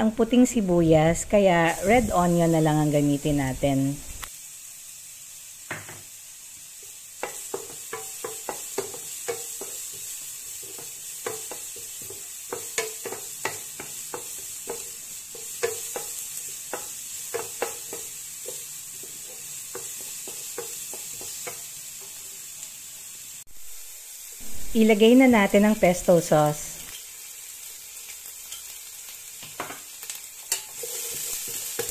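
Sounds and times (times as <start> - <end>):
oil sizzling: 0.0 - 31.9
spatula scraping a frying pan: 30.4 - 31.9.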